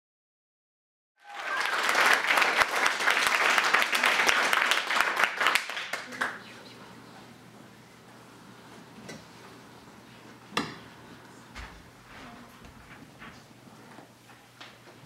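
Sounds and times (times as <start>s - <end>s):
audience applauding: 1.2s - 6.5s.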